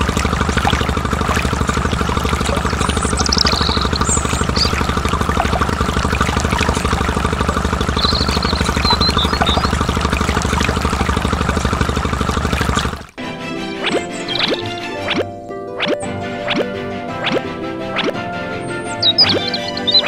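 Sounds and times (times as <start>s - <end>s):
tractor engine idling: 0.0s - 13.2s
thin high chirps: 2.0s - 5.0s, 7.7s - 9.9s, 13.9s - 14.6s, 18.8s - 20.0s.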